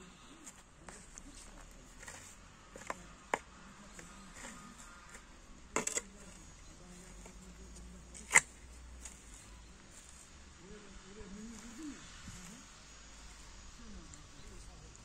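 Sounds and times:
shovel digging soil: 0.5s - 10.2s.

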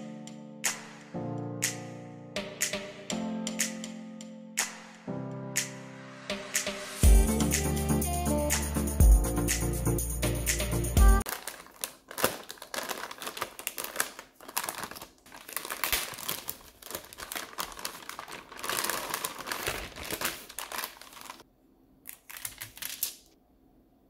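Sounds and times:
metallic bag crinkling: 11.2s - 21.4s, 22.1s - 23.3s.

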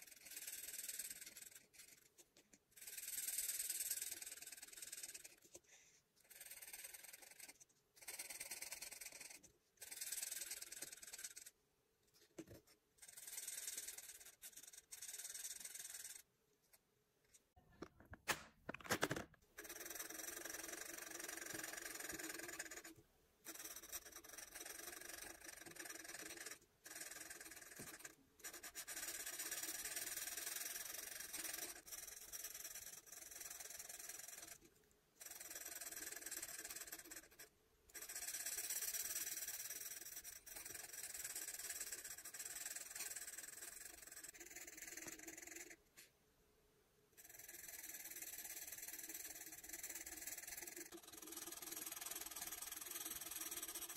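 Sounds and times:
marker tip scratching across paper: 0.0s - 11.6s, 12.2s - 16.8s, 19.6s - 45.7s.

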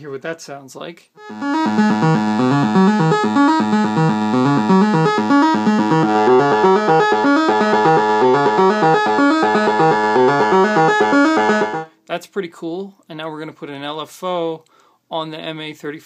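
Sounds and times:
synthesizer repeating pattern: 1.2s - 11.9s.

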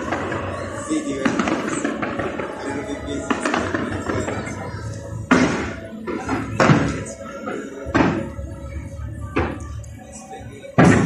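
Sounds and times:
fireworks bangs: 0.0s - 7.1s
music: 0.0s - 11.0s.

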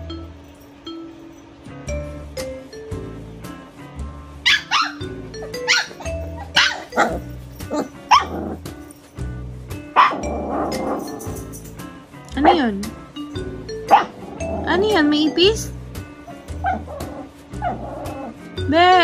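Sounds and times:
background music: 0.0s - 19.0s
puppies barking: 4.4s - 8.7s, 9.9s - 11.6s, 13.8s - 14.7s, 16.2s - 18.4s.

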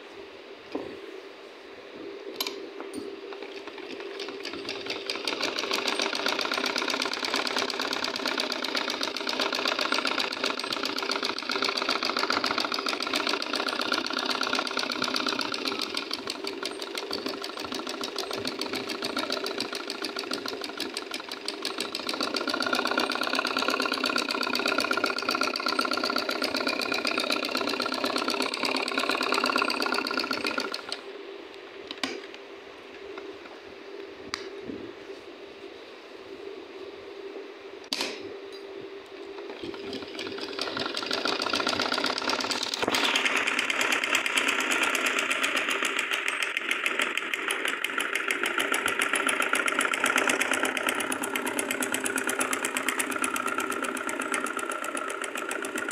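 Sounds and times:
sewing machine running fast: 3.4s - 31.0s, 39.5s - 55.9s.

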